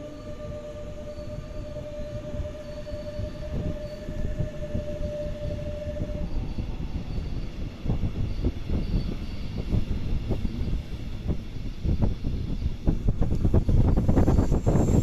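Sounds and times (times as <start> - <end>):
electric train traction hum: 0.0 - 15.0
train rolling rumble: 0.0 - 15.0.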